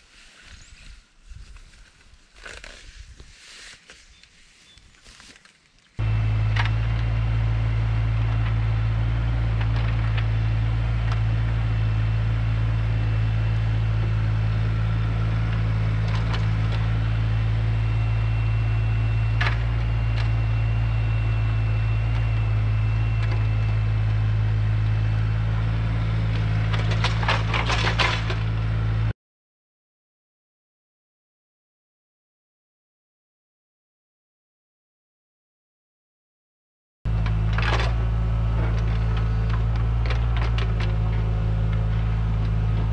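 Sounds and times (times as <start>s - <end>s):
excavator diesel engine running: 6.0s - 29.1s, 37.1s - 42.9s.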